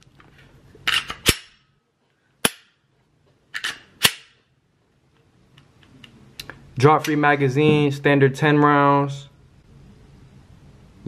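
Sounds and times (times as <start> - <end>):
pistol slide metallic clacks: 3.5 - 4.4.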